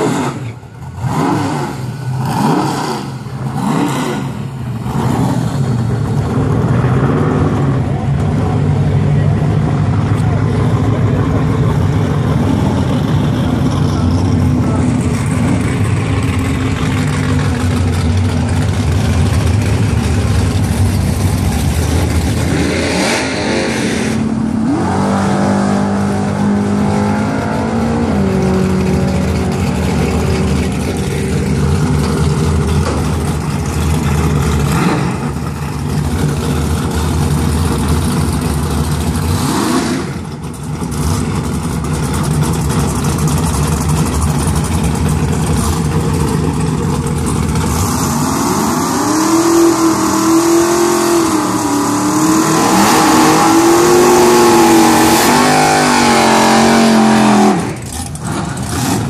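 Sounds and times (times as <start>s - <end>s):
drag car engine revving: 0.0s - 59.0s.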